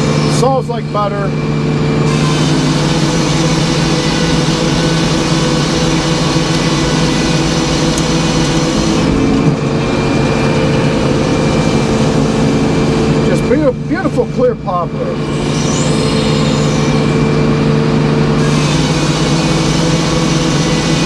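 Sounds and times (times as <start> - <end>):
mill drive running: 0.0 - 21.0.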